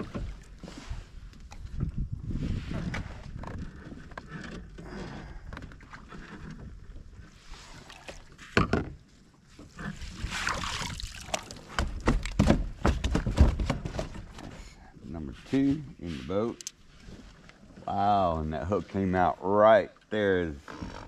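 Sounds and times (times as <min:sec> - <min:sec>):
water sloshing and splashing: 0:00.0 - 0:14.5, 0:15.4 - 0:19.1
net knocking against kayak: 0:10.6 - 0:14.5.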